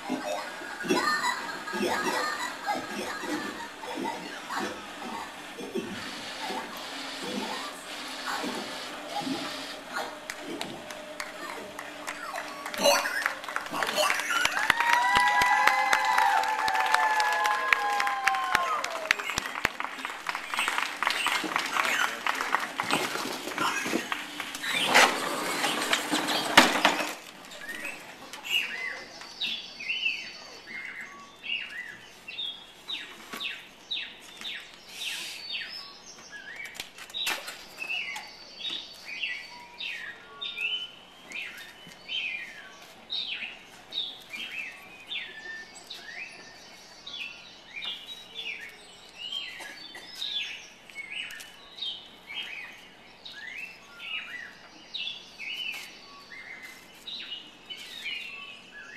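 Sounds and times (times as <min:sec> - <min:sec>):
loud noisy burst: 0:00.8 - 0:16.9.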